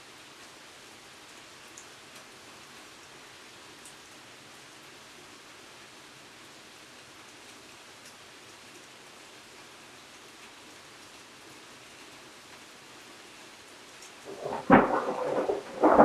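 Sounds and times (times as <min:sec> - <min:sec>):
steady rain hiss: 0:00.0 - 0:16.0
close thunderclap with rumbling: 0:14.3 - 0:16.0.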